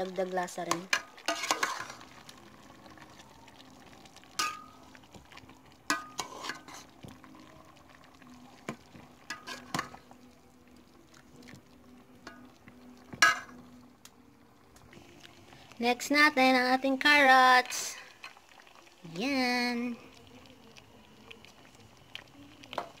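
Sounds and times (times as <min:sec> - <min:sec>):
metal ladle scraping a pot: 0:00.9 - 0:02.1, 0:05.9 - 0:07.0, 0:09.2 - 0:10.0.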